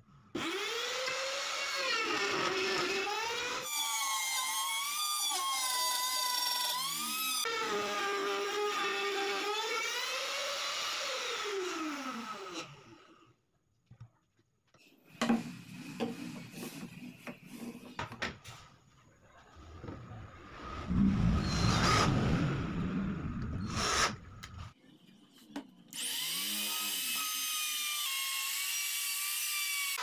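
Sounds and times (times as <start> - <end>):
cordless drill boring into wood: 0.4 - 13.0, 23.6 - 24.5.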